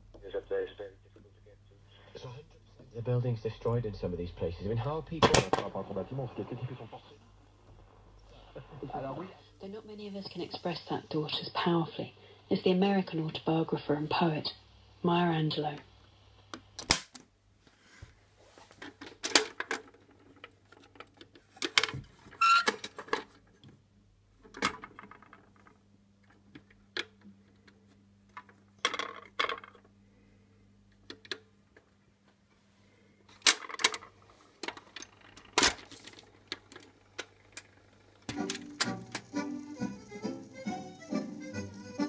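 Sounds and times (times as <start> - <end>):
steady low hum: 0.0 - 16.8
mechanical clicks and clunks: 33.4 - 39.5
music from record: 38.3 - 42.0.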